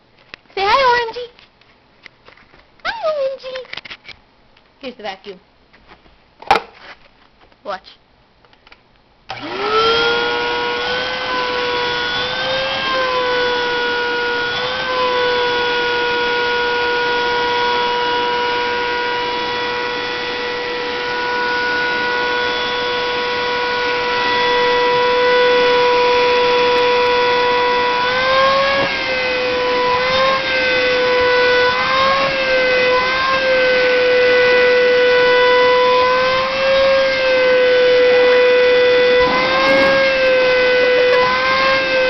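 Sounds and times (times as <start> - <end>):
vacuum cleaner whine: 9.3 - 42.0.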